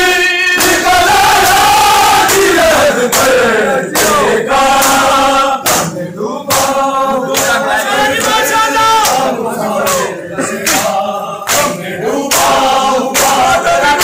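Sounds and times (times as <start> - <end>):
men chanting together: 0.0 - 14.0
hands slapping bare chests: 2.2 - 8.4, 9.0 - 13.6.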